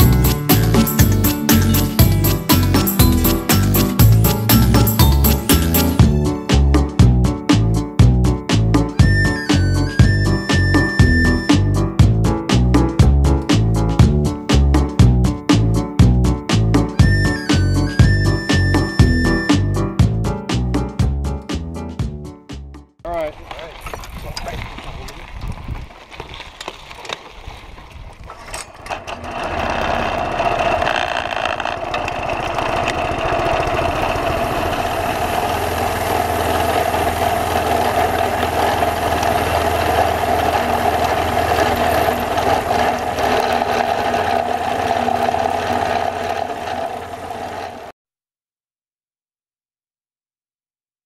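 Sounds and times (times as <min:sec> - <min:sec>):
small engine running: 0:00.0 - 0:06.6, 0:27.6 - 0:48.0
clicks and rattles: 0:28.1 - 0:33.0.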